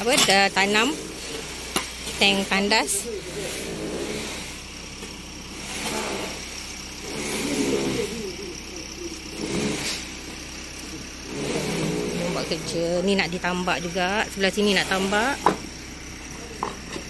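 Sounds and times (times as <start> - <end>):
shovels scraping soil: 0.0 - 8.1, 9.4 - 10.1, 11.2 - 12.8
engine revving: 0.0 - 17.0.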